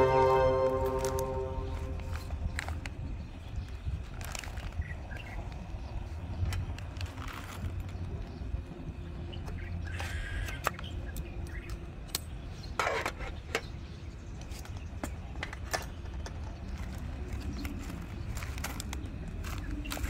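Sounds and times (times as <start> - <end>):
steady low rumble: 0.0 - 7.1
rustling noise: 0.0 - 8.2.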